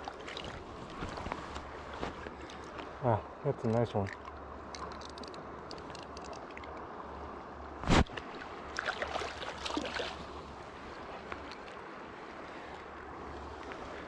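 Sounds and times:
small splashes and clicks: 3.6s - 6.9s, 11.2s - 11.8s
river current rushing: 4.4s - 14.0s.

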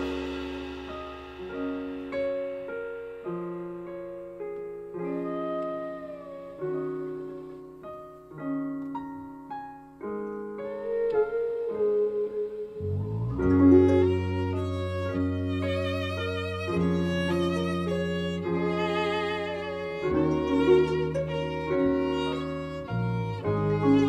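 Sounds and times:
plucked instrumental chords: 0.0s - 7.7s, 12.7s - 24.0s.

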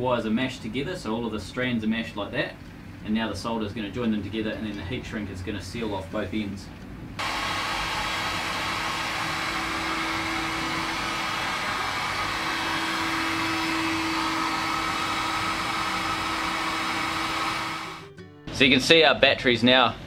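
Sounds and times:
heat gun blowing with whine: 7.2s - 18.0s.

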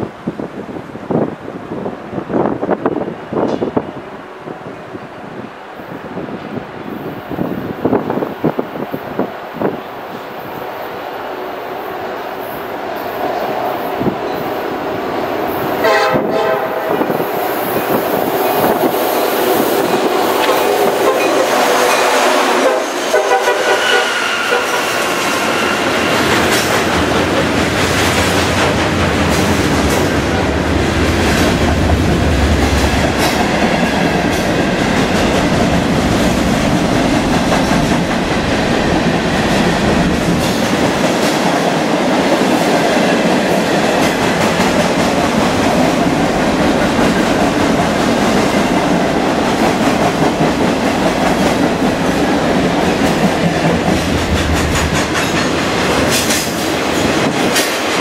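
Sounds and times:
train wheels clattering on rails: 2.5s - 3.9s, 13.1s - 58.0s
locomotive air horn: 15.8s - 17.1s, 20.5s - 25.9s.

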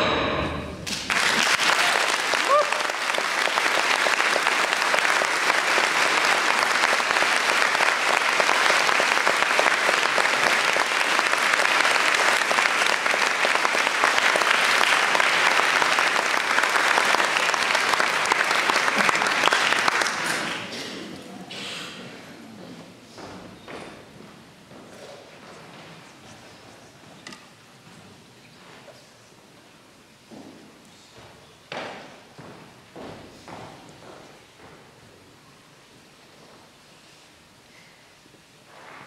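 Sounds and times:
audience applauding: 0.8s - 21.3s.

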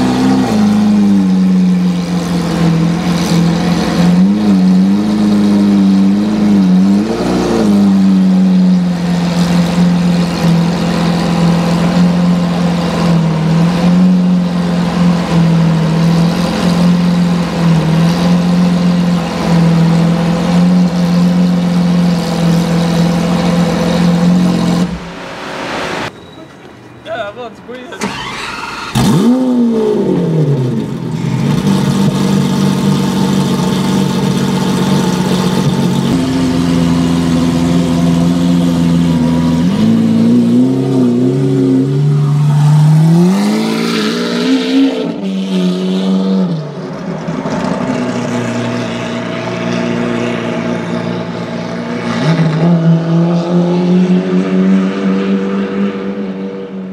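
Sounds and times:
car engine starting and idling: 27.8s - 56.1s.

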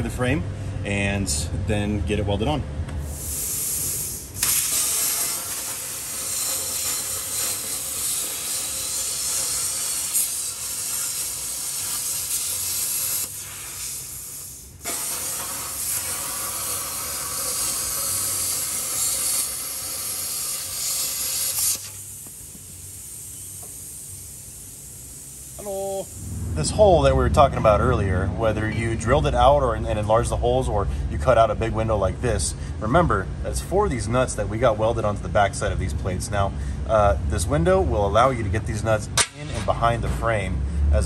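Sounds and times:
hiss of air: 3.0s - 27.0s
plasma cutter hissing: 3.0s - 27.1s.

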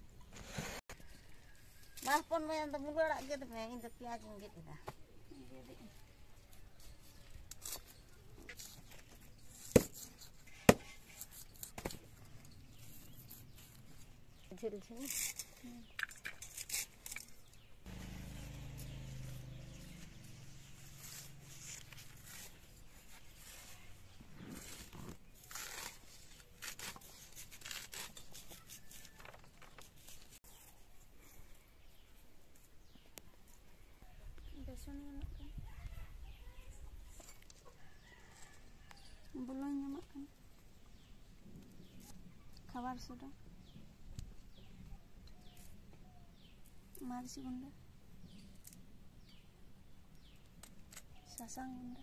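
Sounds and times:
blade slicing leafy greens: 24.5s - 29.2s.

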